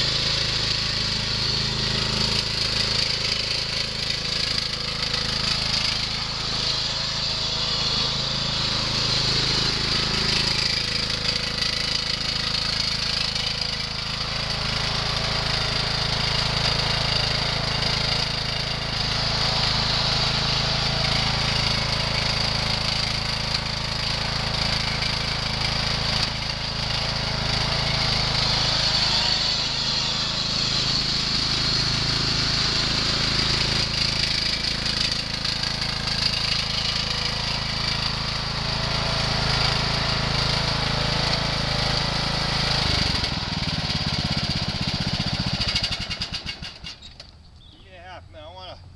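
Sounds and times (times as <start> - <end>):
riding lawn mower engine running: 0.0 - 48.9.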